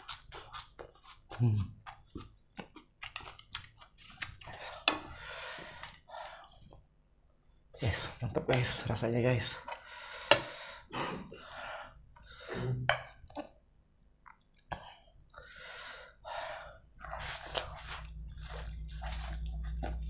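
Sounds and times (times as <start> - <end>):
person chewing noodles: 0.0 - 6.9, 16.6 - 20.0
slurping noodles: 16.8 - 20.0.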